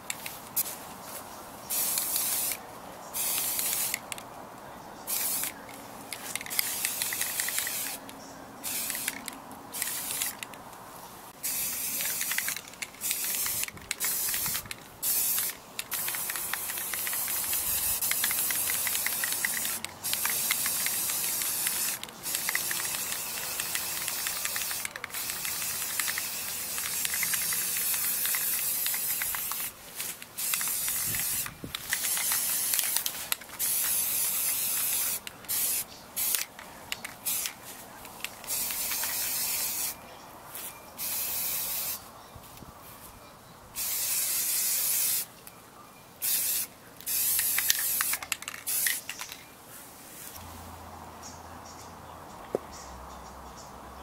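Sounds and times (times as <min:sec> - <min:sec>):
spray paint can hissing: 0:01.7 - 0:02.6, 0:03.2 - 0:04.1, 0:05.1 - 0:08.0, 0:08.6 - 0:10.5, 0:11.4 - 0:37.6, 0:38.2 - 0:40.0, 0:40.6 - 0:42.0, 0:43.8 - 0:45.3, 0:46.2 - 0:49.4.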